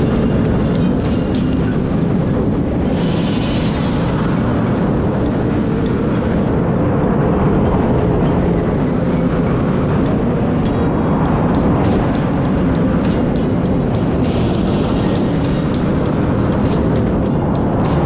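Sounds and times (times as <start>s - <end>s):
motorcycle engines: 0.0s - 18.0s
wind rumble on microphone: 0.0s - 18.0s.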